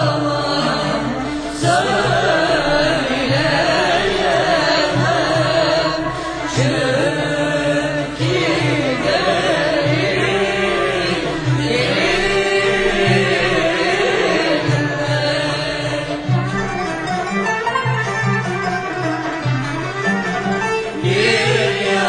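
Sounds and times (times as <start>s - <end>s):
person singing ornamented lines: 0.0s - 17.0s.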